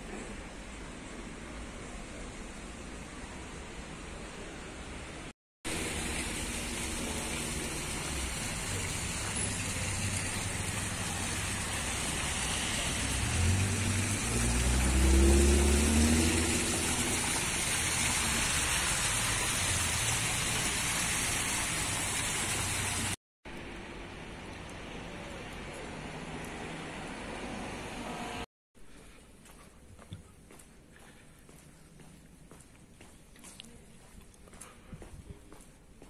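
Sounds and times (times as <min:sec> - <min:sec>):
street traffic: 0:00.0 - 0:28.5
fountain water running: 0:05.7 - 0:26.8
motor vehicle passing: 0:08.0 - 0:20.2.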